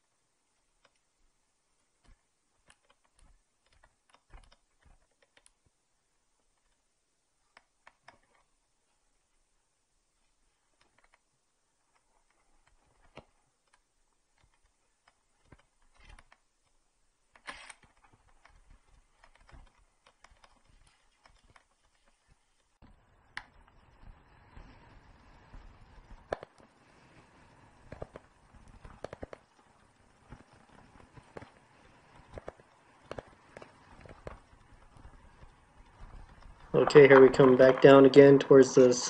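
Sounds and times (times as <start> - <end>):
bike tyres on loose gravel: 23.6 - 38.6.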